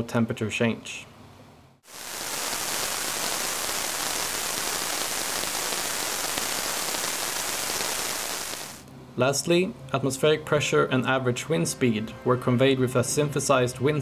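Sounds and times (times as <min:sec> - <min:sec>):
synthesized sizzle: 0:01.8 - 0:08.8.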